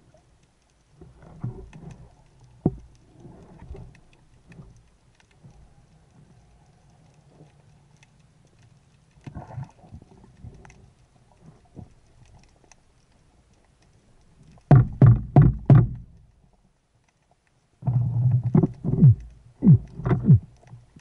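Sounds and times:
faint underwater clicks and knocks: 0.0 - 21.0
loud underwater thumps: 14.7 - 16.1, 18.5 - 20.5.

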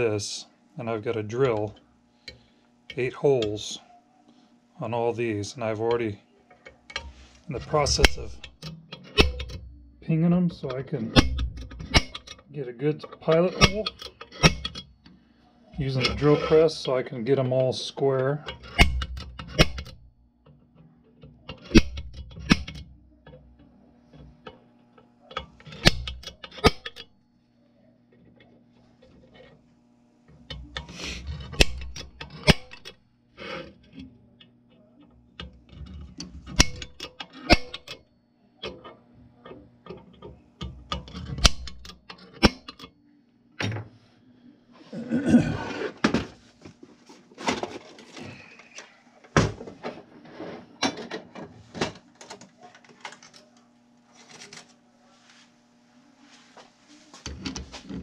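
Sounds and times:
faint steady hum: 0.0 - 58.0
steel being handled: 5.8 - 9.7, 10.5 - 15.2, 15.8 - 27.1, 30.3 - 38.0, 38.6 - 42.9.

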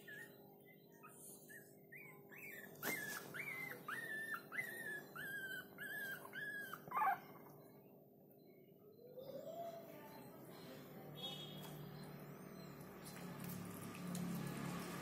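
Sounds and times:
puppy crying: 0.0 - 7.6.

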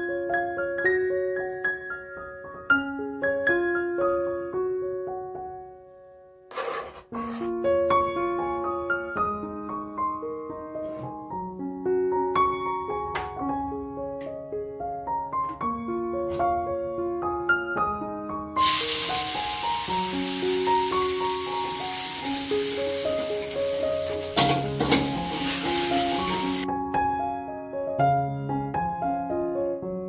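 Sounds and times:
gentle piano music: 0.0 - 6.5, 7.4 - 30.0
paste sizzling in hot oil: 18.6 - 26.7.

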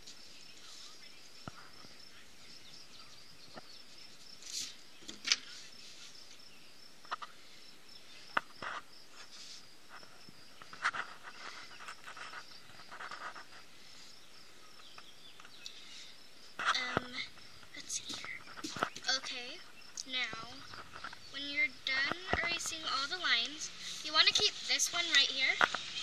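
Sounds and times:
paper rustles: 4.3 - 6.4, 8.6 - 13.6.

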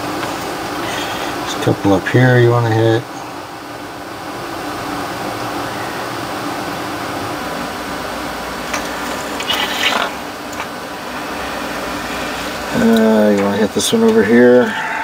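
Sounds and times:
fan-like rushing noise: 0.0 - 15.0
brief crackling hiss: 8.7 - 10.2.

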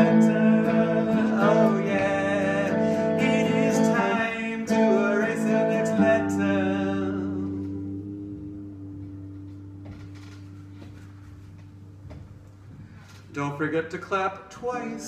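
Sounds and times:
man singing: 0.0 - 9.4, 13.3 - 15.0
guitar chord ringing: 0.0 - 12.2
electric guitar: 0.0 - 13.2.

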